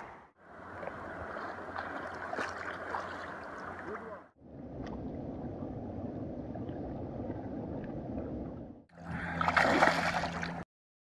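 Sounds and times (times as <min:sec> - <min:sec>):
river water flowing: 0:00.0 - 0:04.3, 0:09.0 - 0:10.6.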